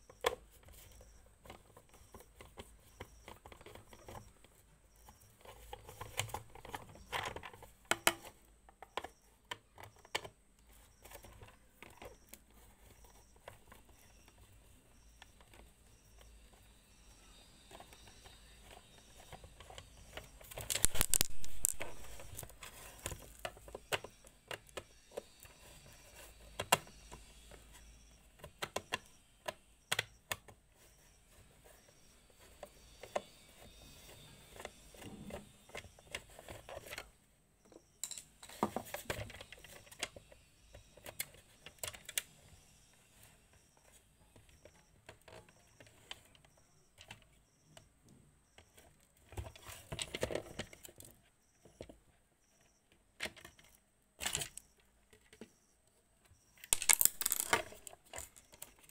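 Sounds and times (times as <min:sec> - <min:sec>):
plastic clicks and clatter: 0:00.0 - 0:14.5, 0:17.7 - 0:30.9, 0:48.6 - 0:52.0, 0:56.2 - 0:58.9.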